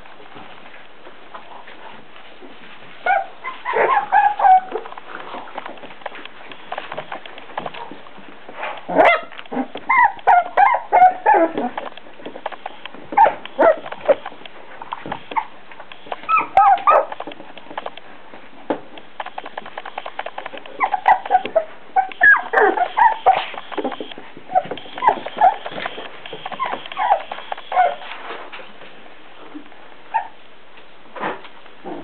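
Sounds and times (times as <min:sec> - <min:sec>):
puppies yipping and whimpering: 0:03.0 - 0:04.8, 0:08.9 - 0:11.8, 0:13.1 - 0:14.3, 0:15.3 - 0:17.2, 0:20.7 - 0:28.1.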